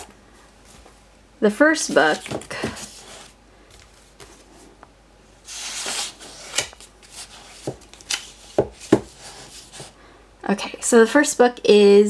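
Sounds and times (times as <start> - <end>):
book scraping against books: 2.0 - 3.4, 5.4 - 10.0
books knocking on wooden shelf: 8.6 - 9.2.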